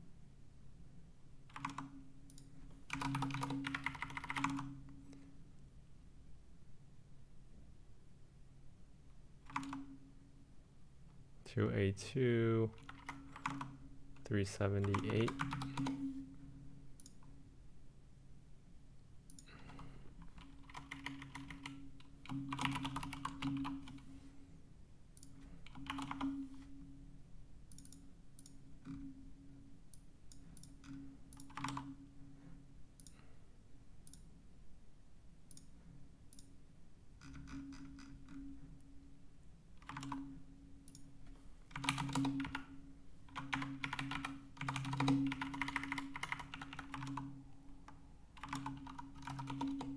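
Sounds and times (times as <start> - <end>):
keyboard typing: 1.5 - 4.8, 9.4 - 10.0, 12.8 - 16.2, 19.3 - 24.1, 25.2 - 26.5, 30.3 - 32.0, 39.8 - 41.1, 41.7 - 49.9.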